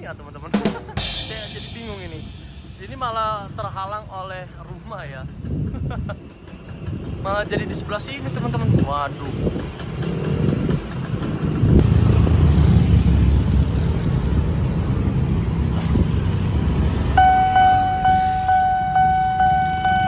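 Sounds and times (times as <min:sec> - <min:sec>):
cars and motorbikes driving: 0:00.0 - 0:20.0
pulsing crossing warning alarm: 0:17.0 - 0:20.0.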